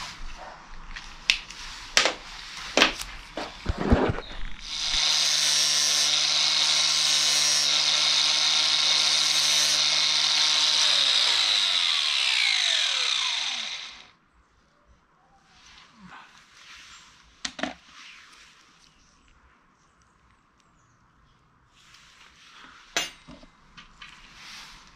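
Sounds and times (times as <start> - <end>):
grinder disc winding down whine: 4.1 - 14.1
angle grinder grinding steel: 4.2 - 14.1.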